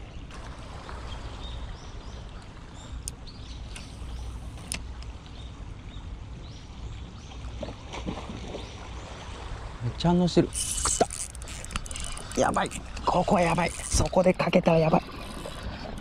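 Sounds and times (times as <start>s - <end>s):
sharp clicks: 10.6s - 14.2s.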